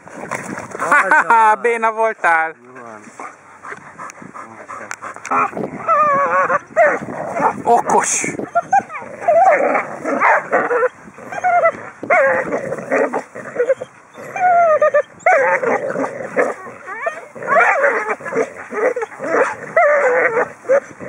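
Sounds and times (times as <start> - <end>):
dogs whining and yipping: 5.1 - 7.6, 8.3 - 21.0.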